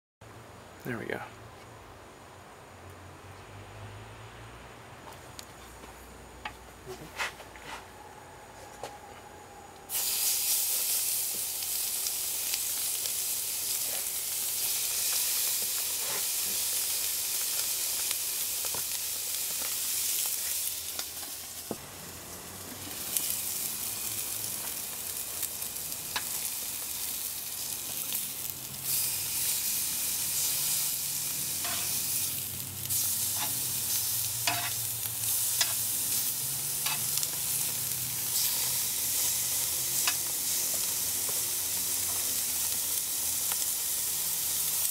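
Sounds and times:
steaks sizzling on grill: 0:09.9 - 0:44.9.

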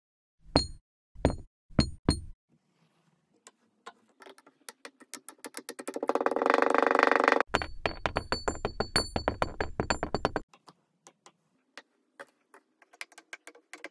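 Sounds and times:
sharp ringing knocks: 0:00.6 - 0:02.3, 0:07.5 - 0:10.4.

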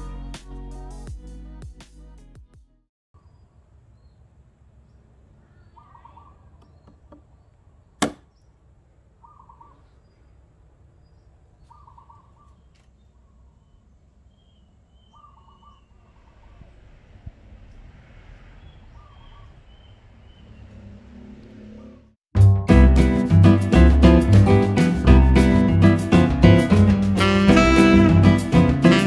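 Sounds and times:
outdoor background noise: 0:03.2 - 0:22.2
hatchet chopping into wood: 0:08.0 - 0:08.3
bird calling: 0:09.2 - 0:10.1, 0:11.7 - 0:12.9, 0:14.4 - 0:16.0.

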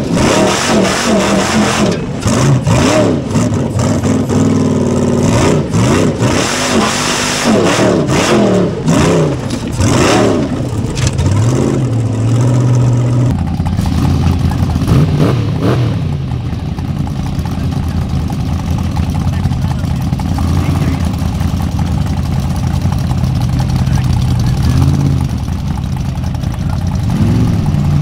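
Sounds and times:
buggy engine revving: 0:00.0 - 0:28.0.

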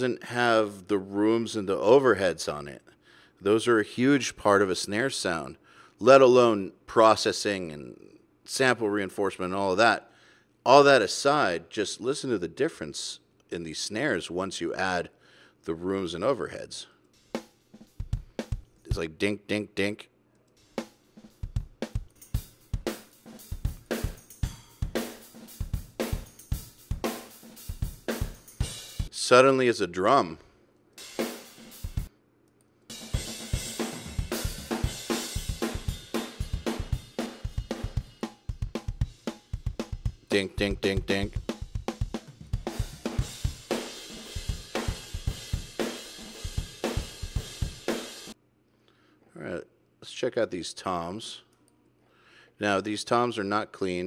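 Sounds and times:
kick drum and snare beat: 0:17.3 - 0:19.0, 0:20.8 - 0:29.1, 0:33.0 - 0:48.3
kick drum: 0:18.0 - 0:18.8, 0:21.4 - 0:22.1
cymbals: 0:20.6 - 0:29.1, 0:31.0 - 0:32.1, 0:32.9 - 0:48.4.

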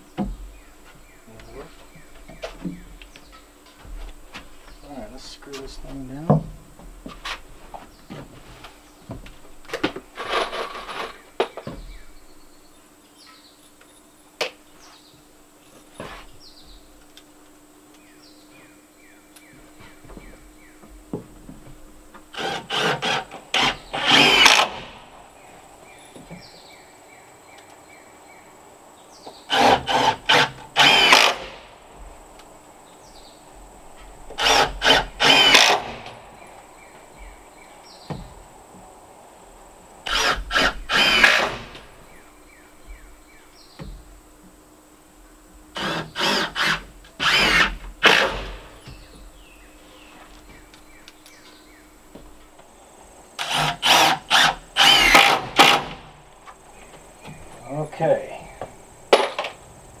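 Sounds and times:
cordless drill driving screws: 0:22.3 - 0:25.0, 0:29.5 - 0:31.6, 0:34.4 - 0:36.1, 0:40.1 - 0:41.9, 0:45.8 - 0:48.8, 0:53.4 - 0:56.0.

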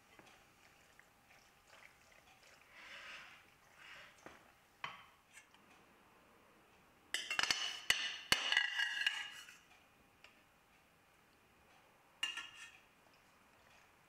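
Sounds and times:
metal spoon clinking on pan: 0:07.2 - 0:09.5, 0:12.2 - 0:12.8.

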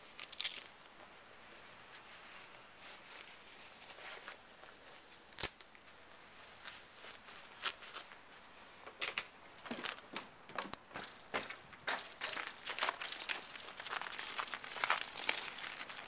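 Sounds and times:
footsteps on snowy bricks: 0:09.6 - 0:16.0.

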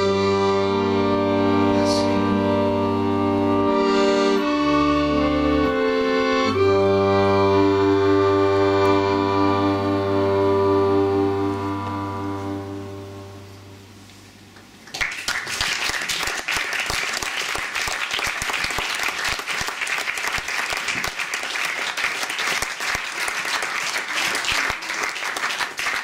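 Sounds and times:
accordion chord: 0:00.0 - 0:14.3
audience applause: 0:14.9 - 0:26.0.

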